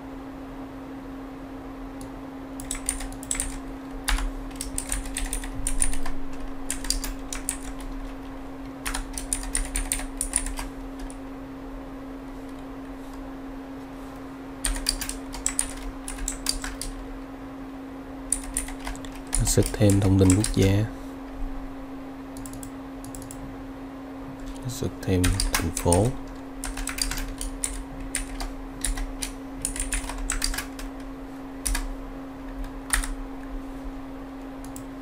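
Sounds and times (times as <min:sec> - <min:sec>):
keyboard typing: 0:02.6 - 0:08.1, 0:08.8 - 0:11.2, 0:14.6 - 0:17.0, 0:18.3 - 0:20.7, 0:22.4 - 0:23.4, 0:25.1 - 0:31.0, 0:31.6 - 0:31.9, 0:32.5 - 0:33.2.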